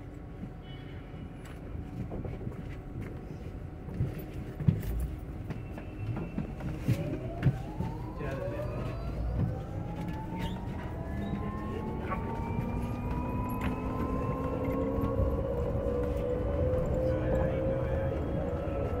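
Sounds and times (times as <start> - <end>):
road rumble: 0.0 - 19.0
bus body knocks and rattles: 1.6 - 8.2
electric drive whine rising: 8.2 - 18.1.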